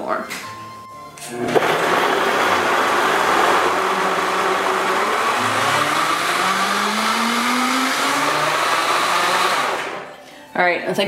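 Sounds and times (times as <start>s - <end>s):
blender running: 1.4s - 10.2s.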